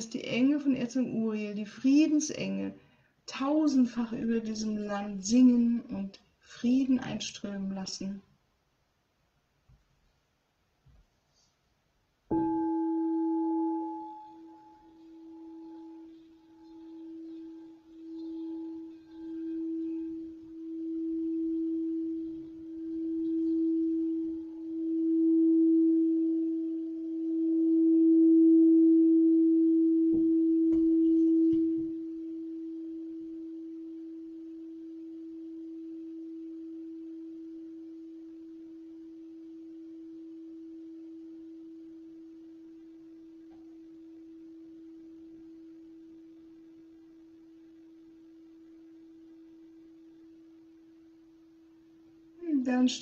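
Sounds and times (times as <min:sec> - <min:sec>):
singing bowl ringing: 0:12.3 - 0:52.3.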